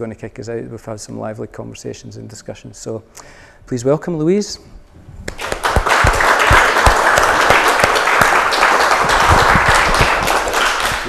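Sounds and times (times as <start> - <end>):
audience applauding: 5.3 - 11.0.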